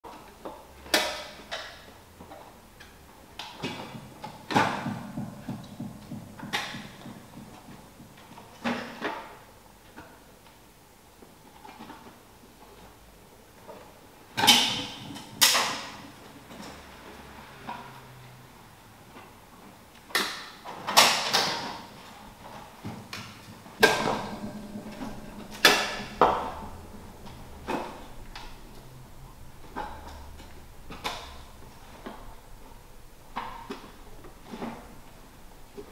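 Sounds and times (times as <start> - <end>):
sharp reverberant knocks and clatters: 3.6 - 9.1, 22.8 - 35.0.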